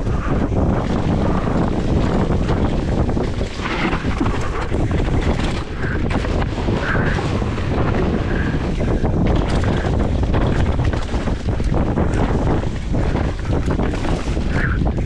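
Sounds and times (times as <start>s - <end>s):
bike clattering on rough trail: 0.0s - 15.0s
wind buffeting microphone: 0.0s - 15.0s.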